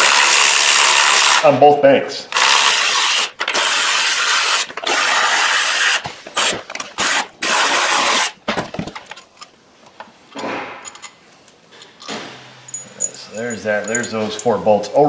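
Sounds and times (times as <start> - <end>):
cordless ratchet whirring: 2.4 - 5.2
parts clicking when handled: 8.9 - 14.6.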